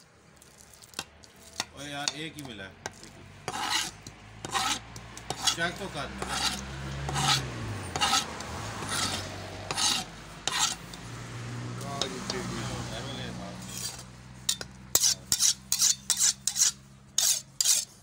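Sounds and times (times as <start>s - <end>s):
large knife blade scraping: 2.9s - 11.0s, 13.6s - 18.0s.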